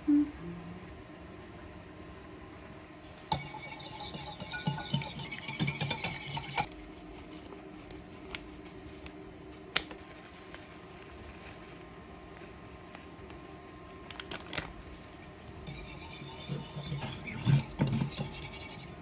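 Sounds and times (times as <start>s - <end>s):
whisk clinking against ceramic bowl: 3.3s - 6.7s, 15.2s - 19.0s.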